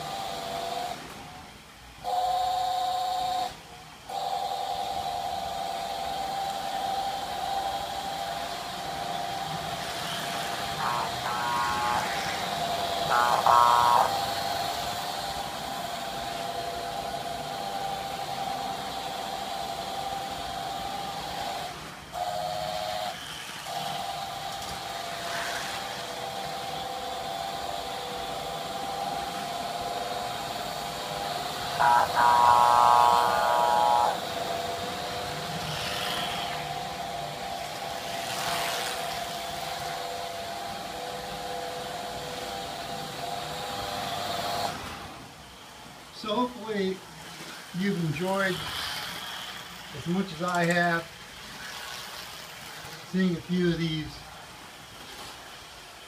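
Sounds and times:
toy train track noise: 0.0s - 44.8s, 47.2s - 56.0s
toy train electric hum: 0.0s - 56.0s
buzzy diesel horn blasts: 10.8s - 14.8s, 31.7s - 34.4s.

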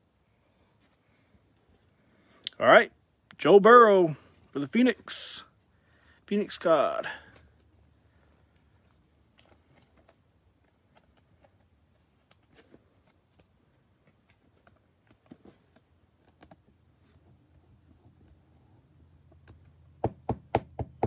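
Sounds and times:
trading cards rustling: 8.4s - 17.8s.

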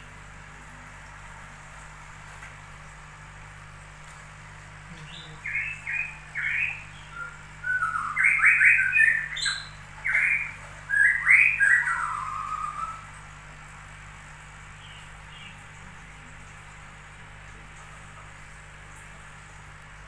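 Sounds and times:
bird chirping and squawking: 5.1s - 13.0s.

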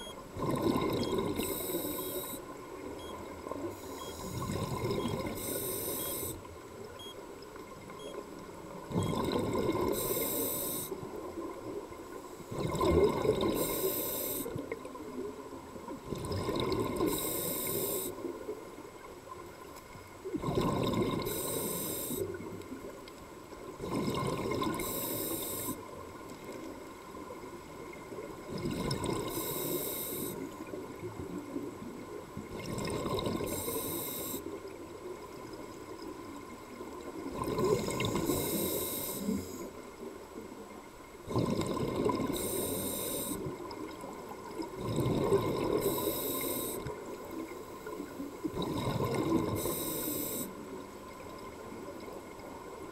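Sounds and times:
bubbles rumbling underwater: 0.4s - 1.4s, 8.8s - 9.9s, 12.5s - 13.6s, 15.9s - 17.1s, 20.2s - 21.3s, 23.8s - 24.8s, 28.1s - 29.3s, 30.7s - 33.6s, 36.9s - 38.4s, 41.3s - 42.4s, 43.5s - 45.8s, 48.4s - 49.7s
air hissing through regulator: 1.4s - 2.4s, 5.2s - 6.4s, 9.9s - 11.0s, 13.6s - 14.5s, 17.1s - 18.2s, 21.3s - 22.3s, 24.8s - 25.8s, 29.3s - 30.4s, 33.5s - 34.5s, 38.0s - 39.7s, 42.3s - 43.4s, 45.8s - 46.8s, 49.5s - 50.5s.

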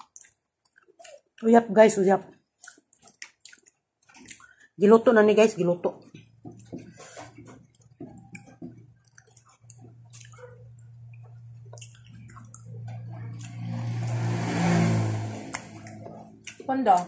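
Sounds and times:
rushing noise: 13.5s - 16.0s.

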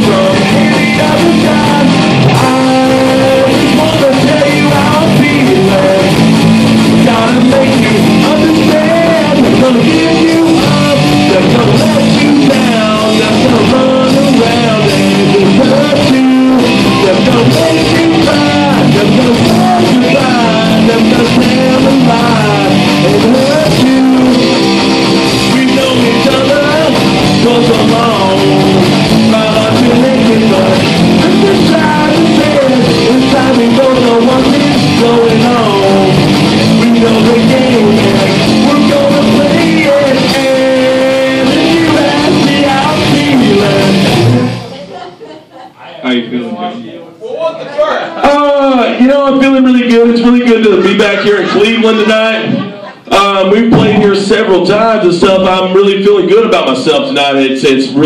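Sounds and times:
bass guitar: 0.0s - 44.9s, 48.2s - 57.0s
electric guitars: 0.0s - 45.0s
drums: 0.0s - 45.5s, 48.2s - 58.0s.

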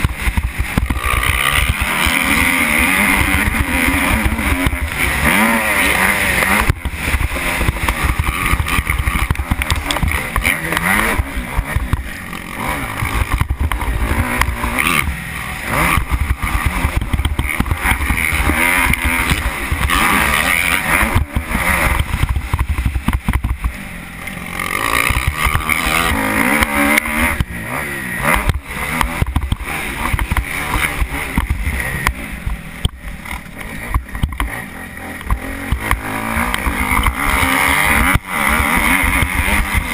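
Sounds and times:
motocross engine revving: 0.0s - 39.9s.

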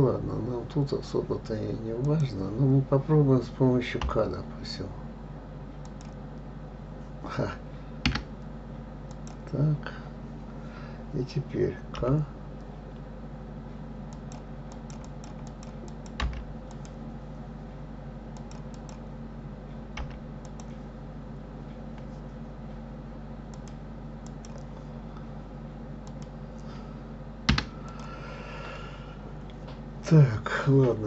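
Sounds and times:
steady low hum: 0.0s - 31.0s
mouse and keyboard clicks: 14.1s - 17.0s, 23.5s - 24.7s.

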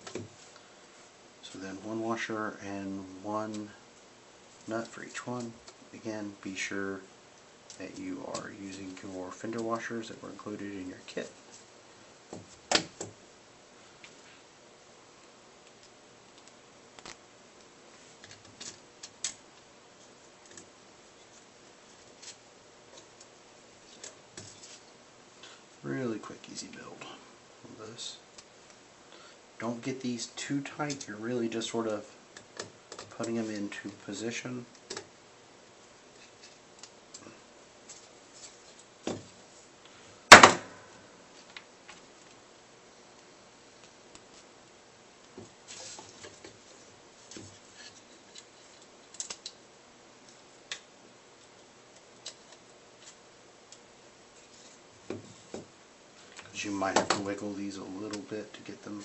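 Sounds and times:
sharp wooden knock: 40.3s - 40.8s.

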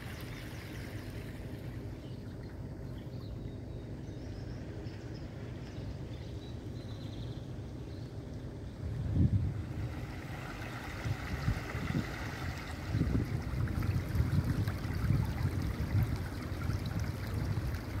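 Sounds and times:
stream trickling over pebbles: 0.0s - 1.8s, 9.7s - 18.0s
wind buffeting microphone: 8.8s - 18.0s.

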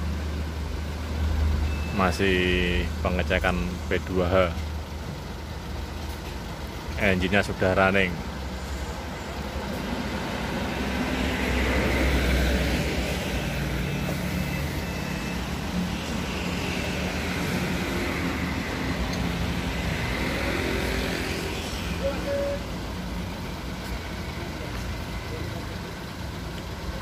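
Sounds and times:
diesel truck engine idling: 0.0s - 27.0s
rushing road noise: 0.0s - 27.0s.

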